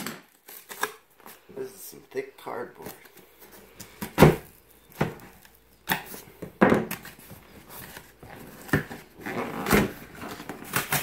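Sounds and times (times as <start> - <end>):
cardboard ripping and scraping: 6.9 - 11.0.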